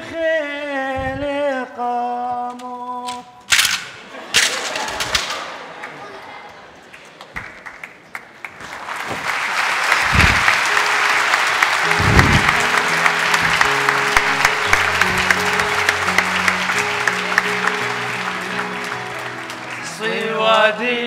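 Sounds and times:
crowd applauding: 0:04.6 - 0:21.0
held instrumental chords: 0:10.4 - 0:21.0
deep boom: 0:11.9 - 0:12.6.

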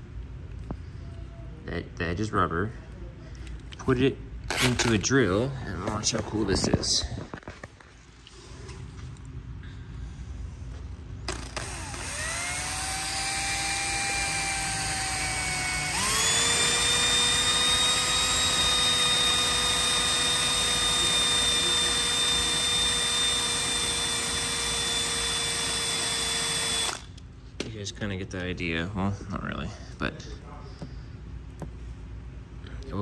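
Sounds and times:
drill motor whine: 0:11.3 - 0:27.2.

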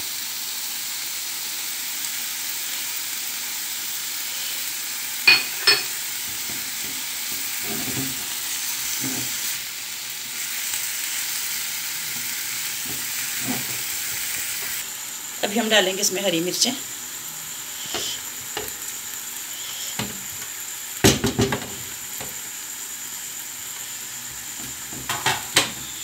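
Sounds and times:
food sizzling in frying pan: 0:00.0 - 0:26.0
spoon scraping pan: 0:05.3 - 0:09.5, 0:12.1 - 0:14.8
sharp knocks on pan: 0:21.0 - 0:22.3, 0:25.0 - 0:25.7.

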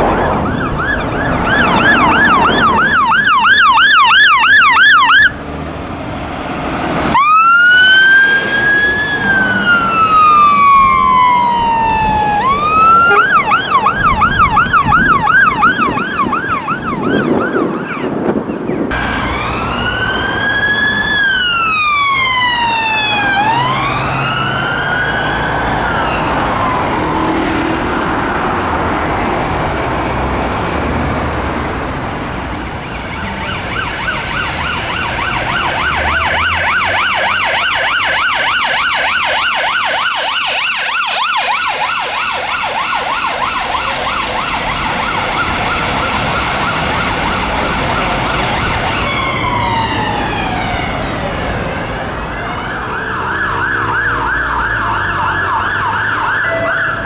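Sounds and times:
two-tone siren wailing and yelping: 0:00.0 - 0:05.4, 0:07.2 - 0:18.2, 0:19.2 - 0:27.1, 0:32.8 - 0:57.0
traffic noise: 0:00.0 - 0:57.0.

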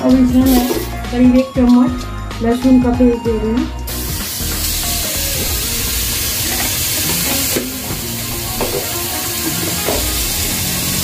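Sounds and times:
garlic sizzling in hot oil: 0:03.9 - 0:11.0.

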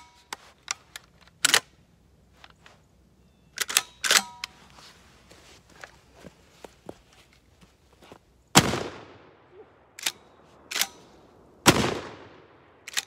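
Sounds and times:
shotgun blasts: 0:08.5 - 0:12.9.

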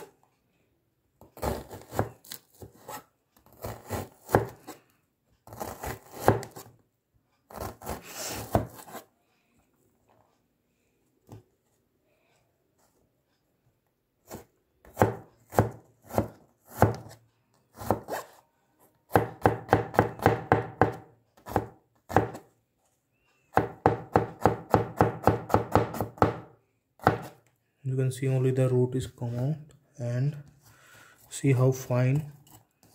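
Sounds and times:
cleaver chopping on plastic board: 0:03.6 - 0:04.6, 0:05.5 - 0:06.7, 0:07.5 - 0:08.9, 0:14.3 - 0:17.2, 0:19.1 - 0:22.4, 0:23.5 - 0:27.4.

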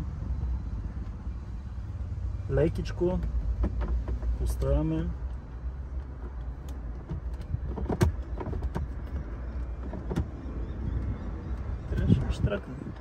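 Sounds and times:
plastic clicks and knocks: 0:03.2 - 0:04.7.

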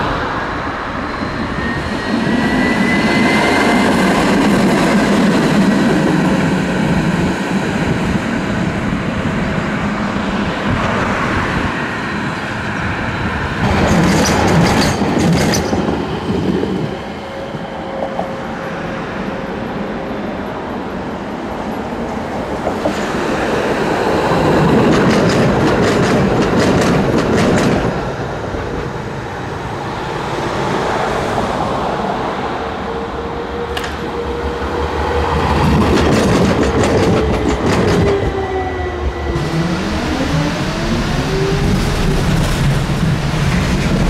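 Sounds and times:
tram wheels clattering over joints: 0:13.6 - 0:16.7, 0:24.6 - 0:29.0, 0:35.3 - 0:38.4
electric tram drive whine: 0:32.4 - 0:44.0.

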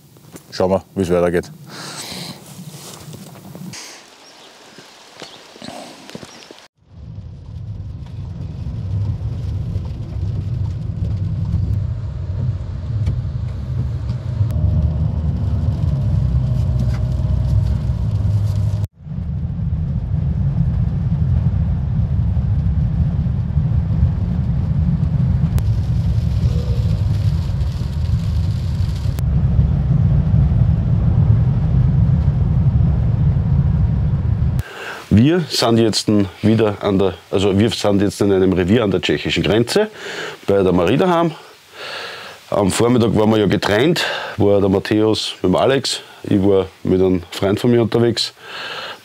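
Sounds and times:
car road and engine rumble: 0:06.8 - 0:34.6.

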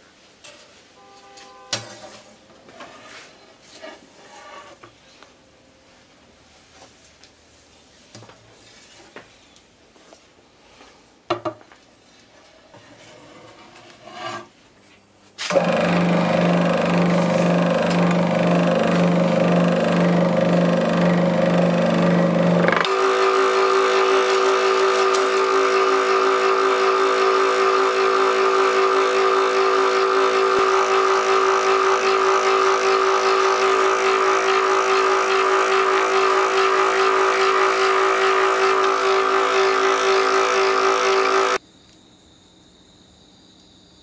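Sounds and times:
band saw cutting wax: 0:15.5 - 0:41.6.

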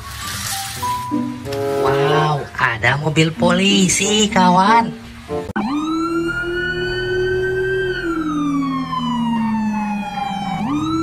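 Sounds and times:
police siren wailing: 0:05.6 - 0:11.0.

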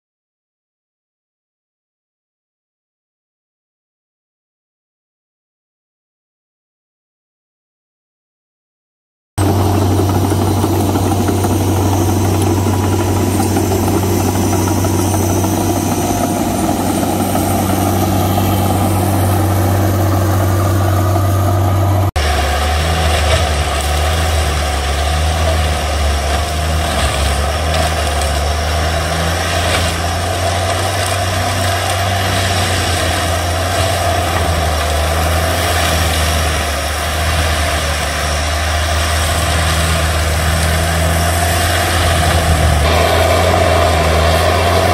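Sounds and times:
diesel engine running: 0:09.4 - 0:44.9
machine mulching brush: 0:09.4 - 0:44.9.

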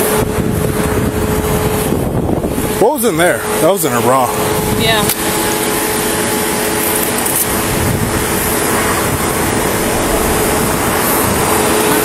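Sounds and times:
air conditioning rush: 0:00.0 - 0:12.0
faint constant hum: 0:00.0 - 0:12.0
car idling: 0:04.0 - 0:12.0.

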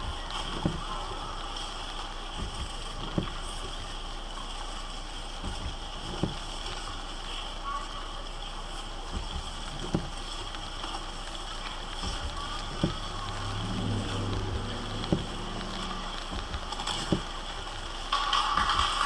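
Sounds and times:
low engine hum: 0:00.0 - 0:19.0
rain hiss: 0:00.0 - 0:19.0
soft knocks: 0:12.0 - 0:17.3
low drone: 0:12.0 - 0:17.8
rushing noise: 0:12.1 - 0:18.1.

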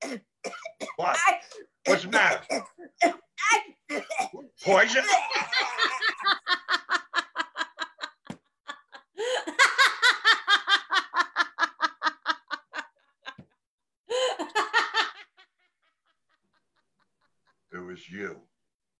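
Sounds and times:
woman laughing hard: 0:05.1 - 0:13.5, 0:14.1 - 0:17.6.

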